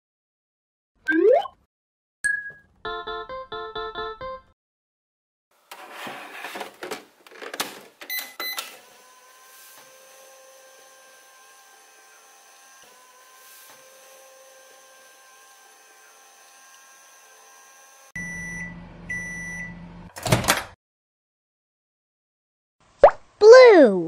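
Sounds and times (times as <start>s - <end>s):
plastic door clicks and knocks: 20.2s - 20.8s.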